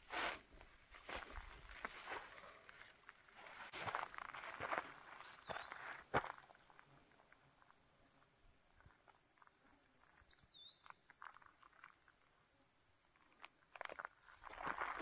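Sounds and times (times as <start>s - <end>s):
footsteps rustling through vegetation: 0.0s - 2.6s, 3.4s - 6.0s
insects trilling: 0.0s - 15.0s.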